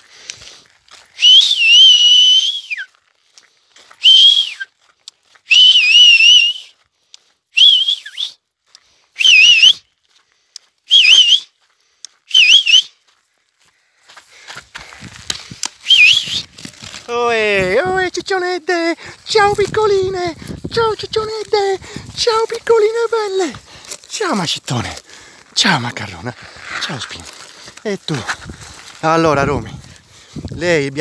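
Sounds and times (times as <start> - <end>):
person whistling loudly: 1.2 - 2.9, 4.0 - 4.7, 5.4 - 6.8, 7.5 - 8.4, 9.2 - 9.9, 10.9 - 11.6, 12.3 - 13.0, 15.8 - 18.1.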